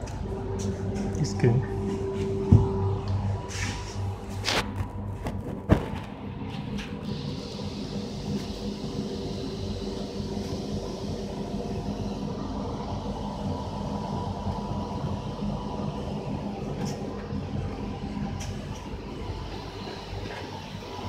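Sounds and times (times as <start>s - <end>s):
factory machinery hum: 0.0s - 21.0s.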